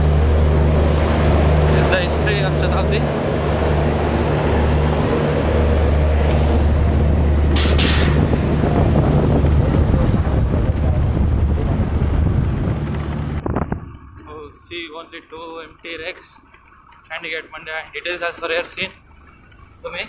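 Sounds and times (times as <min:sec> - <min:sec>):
motorbike engine running: 0:00.0 - 0:14.5
wind buffeting microphone: 0:00.0 - 0:14.9.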